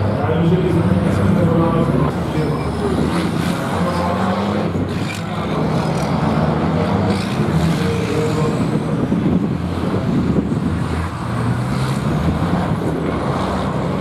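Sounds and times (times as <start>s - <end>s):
truck diesel engine under load: 0.0s - 14.0s.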